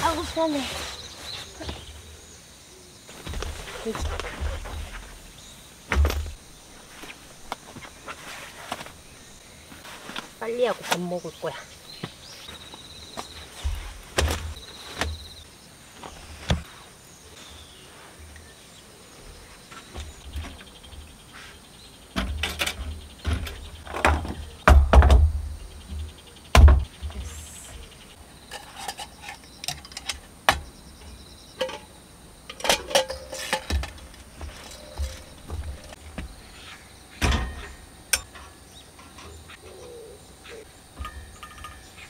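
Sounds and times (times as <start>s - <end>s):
metal camp tables unfolding: 3.2s - 7.5s, 22.1s - 25.4s, 28.4s - 39.9s, 40.9s - 42.0s
heavy thumps: 5.9s - 7.1s, 13.6s - 15.2s, 22.2s - 27.3s.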